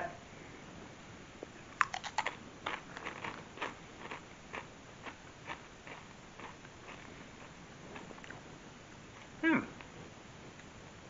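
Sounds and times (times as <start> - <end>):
crunching tortilla chips: 1.8 - 8.4.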